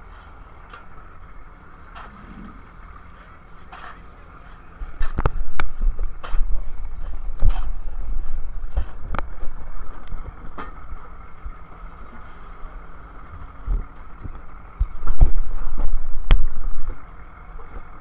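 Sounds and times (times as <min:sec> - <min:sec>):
boat engine and machinery humming: 0:00.0 - 0:18.0
wind rumble on microphone: 0:04.8 - 0:11.6, 0:13.3 - 0:18.0.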